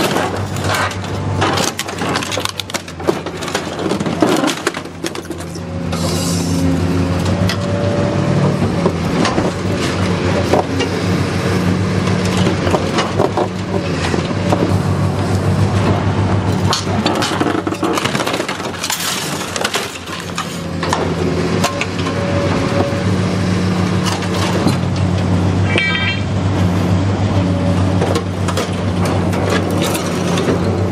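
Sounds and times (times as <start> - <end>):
diesel engine humming: 0.0 - 30.9
metal crunching and scraping: 0.0 - 30.9.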